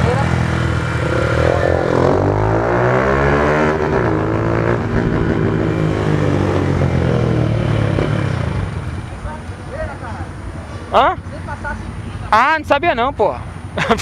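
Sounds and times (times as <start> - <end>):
motorcycle engine revving: 0.0 - 9.2.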